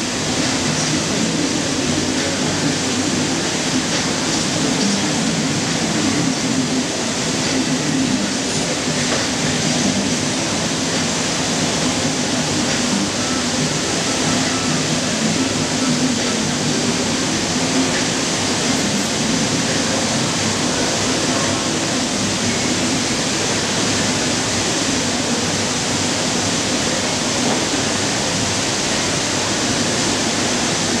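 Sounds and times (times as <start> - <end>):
steady rushing noise: 0.0 - 31.0.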